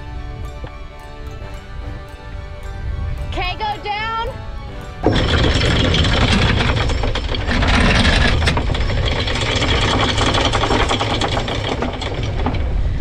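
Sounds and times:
windlass motor drone: 0.0s - 13.0s
anchor chain clattering: 4.4s - 13.0s.

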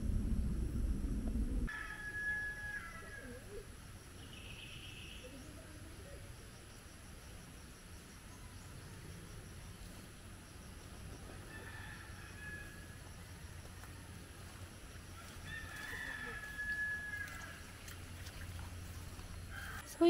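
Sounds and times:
faint low background rumble: 0.0s - 1.7s
rooster crowing: 1.7s - 3.5s, 11.3s - 13.1s, 15.2s - 17.8s, 19.5s - 19.9s.

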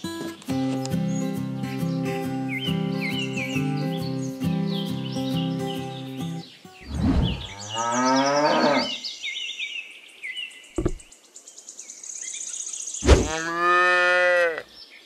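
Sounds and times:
birds chirping: 0.0s - 13.6s
cow mooing: 7.3s - 9.0s, 13.2s - 14.6s.

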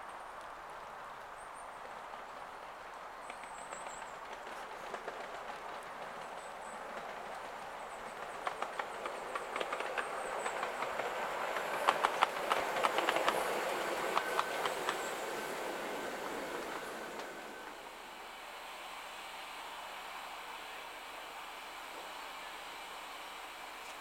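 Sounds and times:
miniature train running past: 0.0s - 24.0s
wheels clicking over rail joints: 1.8s - 17.8s.

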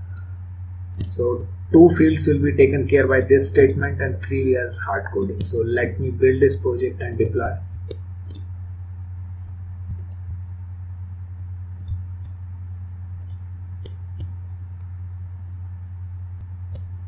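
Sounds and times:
computer mouse clicks: 0.0s - 0.3s, 0.9s - 1.1s, 3.2s - 3.8s, 5.2s - 5.7s, 7.1s - 8.5s, 9.4s - 10.3s, 11.8s - 12.4s, 13.2s - 14.9s, 16.7s - 16.9s
low electrical hum: 0.0s - 17.0s.

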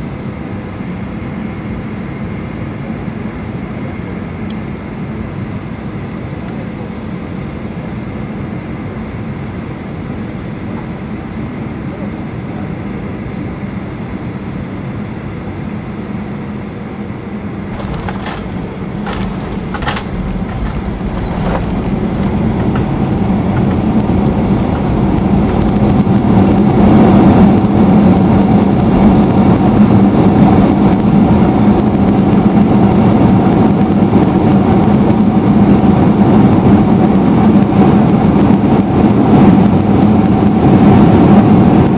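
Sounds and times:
airliner cabin engine noise: 0.0s - 41.9s
reverse thrust roar: 17.6s - 41.9s
touchdown knocks and rattles: 17.7s - 26.3s.

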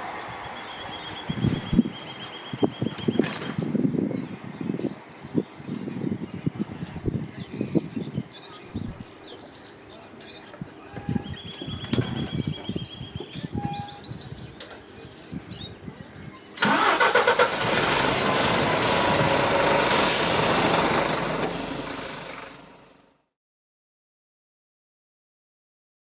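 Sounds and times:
train passing: 0.0s - 2.3s, 16.7s - 22.9s
birds chirping: 0.0s - 23.0s.

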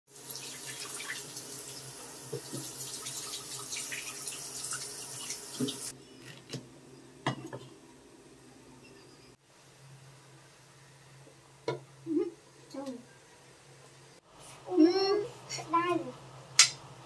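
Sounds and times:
tap water running into sink: 0.2s - 5.9s.

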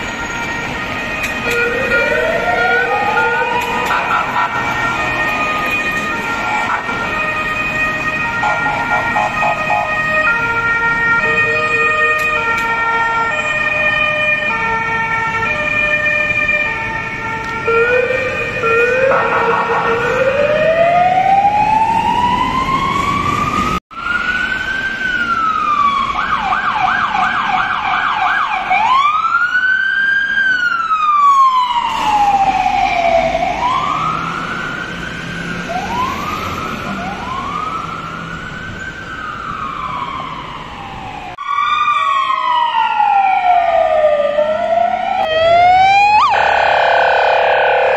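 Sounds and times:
police sirens two-tone: 0.0s - 47.9s
electronic siren wailing and yelping: 1.4s - 10.4s, 17.6s - 23.3s, 39.6s - 47.9s.

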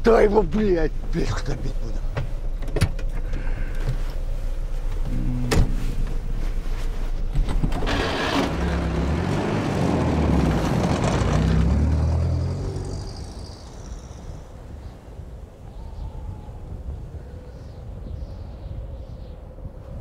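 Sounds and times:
van engine running: 1.7s - 14.4s
van engine revving: 3.2s - 14.6s.

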